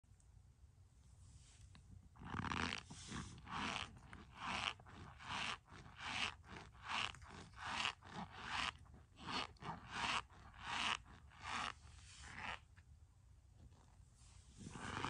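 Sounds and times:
spoon scraping shaved soap: 2.2s - 12.7s.

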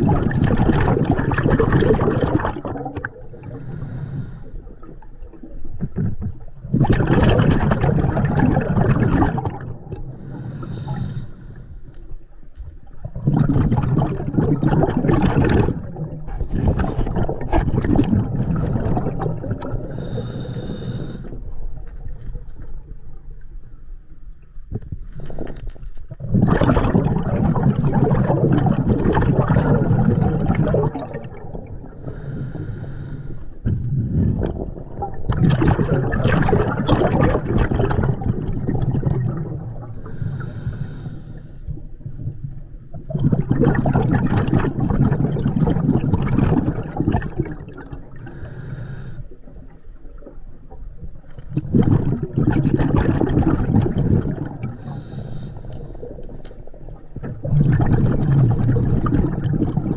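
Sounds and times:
exhaled bubbles rushing: 0.0s - 11.3s, 12.8s - 23.2s, 25.2s - 32.8s, 33.6s - 41.0s, 41.7s - 59.9s
regulator inhalation hiss: 3.4s - 4.6s, 10.2s - 11.9s, 19.8s - 21.4s, 32.0s - 33.6s, 40.0s - 41.7s, 48.2s - 49.4s, 54.8s - 56.1s.

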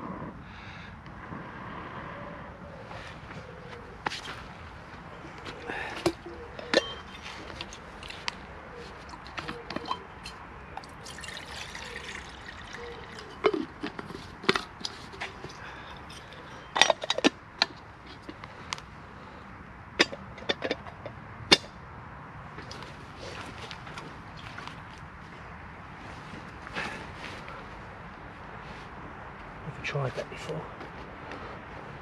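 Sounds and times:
water pouring into metal kettle: 10.8s - 13.4s.

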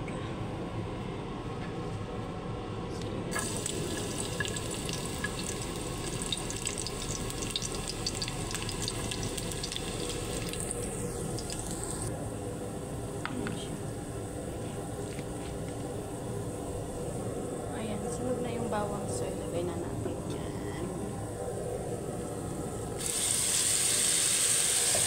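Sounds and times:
steady low hum: 0.0s - 24.3s
garlic sizzling in oil: 3.3s - 12.1s, 23.0s - 25.0s.

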